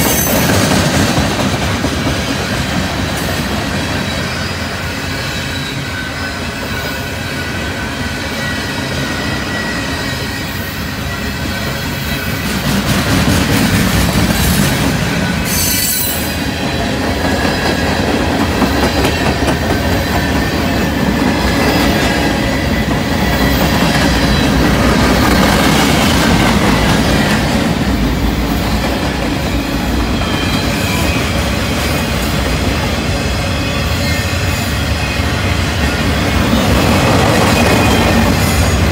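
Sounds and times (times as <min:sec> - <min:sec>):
train wheels rumbling and rattling: 0:00.0 - 0:38.9
sharp wheel screech: 0:15.1 - 0:16.5.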